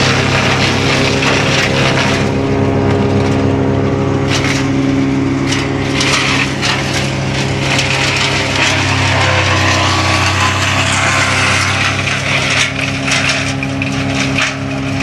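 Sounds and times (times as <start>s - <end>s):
diesel engine drone: 0.0s - 15.0s
wood chipper crackling branches: 0.0s - 15.0s.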